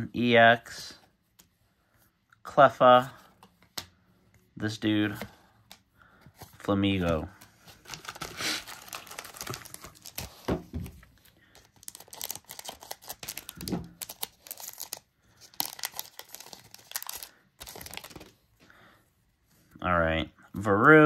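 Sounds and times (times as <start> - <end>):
foil pack crinkling and tearing: 7.7 - 10.5, 11.4 - 18.3.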